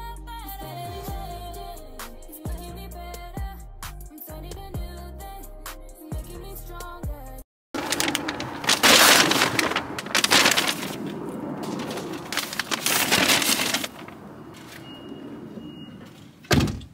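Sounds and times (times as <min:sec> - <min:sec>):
paper bags rustling and crinkling: 0:07.8 - 0:14.9.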